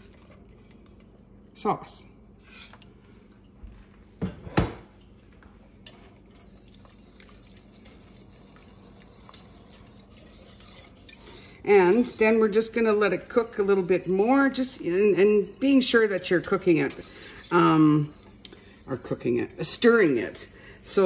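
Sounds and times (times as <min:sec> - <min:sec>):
whisk stirring sauce in pot: 0:05.8 - 0:21.0.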